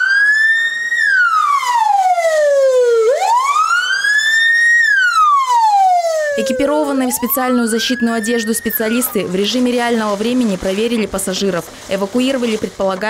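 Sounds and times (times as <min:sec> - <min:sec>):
ambulance siren wailing: 0:00.0 - 0:09.8.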